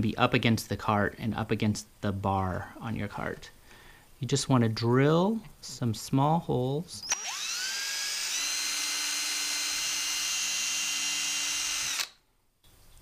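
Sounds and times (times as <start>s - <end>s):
cordless drill whining: 7.0s - 12.2s.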